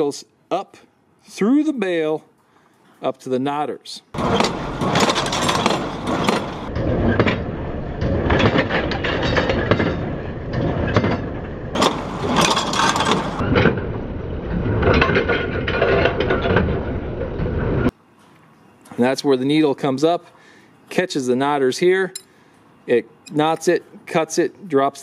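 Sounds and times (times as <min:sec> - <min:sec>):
hay baler clattering: 0:04.2 - 0:07.4, 0:11.8 - 0:13.5.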